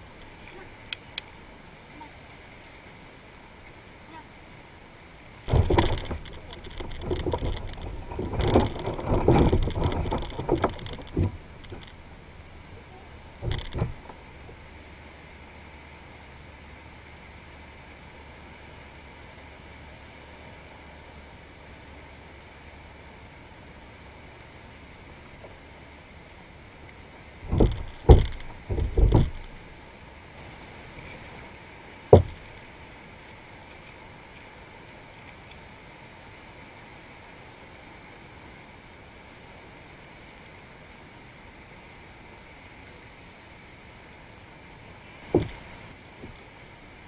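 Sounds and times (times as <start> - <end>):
steady hiss: 0.0 - 47.0
dull knocks in a boat: 5.5 - 11.9, 13.4 - 14.2, 27.4 - 29.6, 32.1 - 32.5, 45.3 - 46.4.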